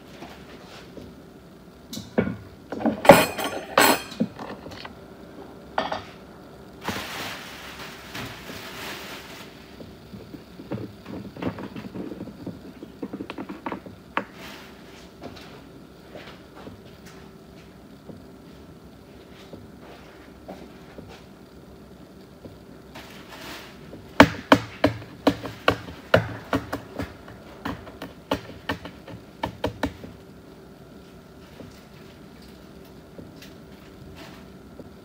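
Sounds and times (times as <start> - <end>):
faint steady hum: 0.0 - 35.0
dishes and utensils clattering: 2.7 - 4.8.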